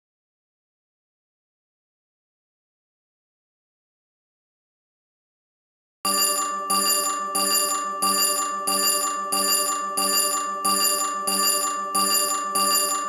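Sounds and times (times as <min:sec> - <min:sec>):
steady high tone: 0:06.1 - 0:13.0
timer alarm bell ringing: 0:06.1 - 0:13.0.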